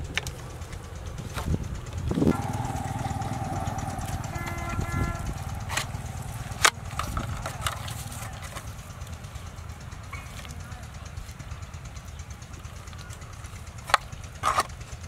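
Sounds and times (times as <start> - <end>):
low engine rumble: 0.0 - 13.2.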